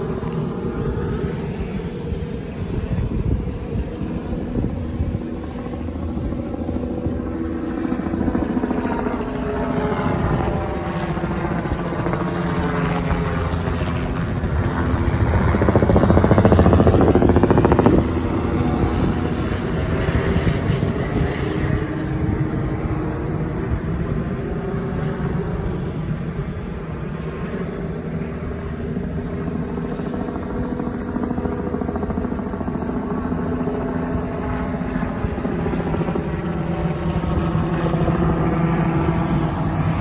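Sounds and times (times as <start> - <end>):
helicopter rotor and engine: 0.0 - 40.0.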